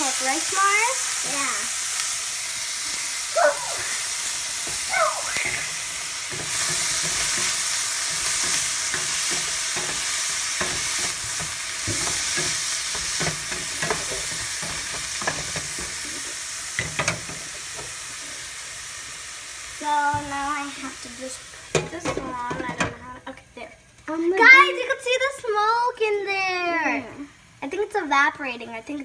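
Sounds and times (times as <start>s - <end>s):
onions sizzling in pan: 0.0s - 29.0s
wooden spatula scraping pan: 4.6s - 18.0s.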